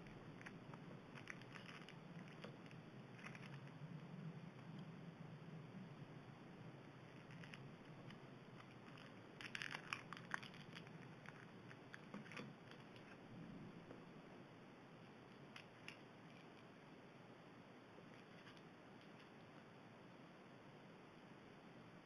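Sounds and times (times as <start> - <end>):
foil wrapper crinkling: 0.4 - 3.8, 7.1 - 13.2.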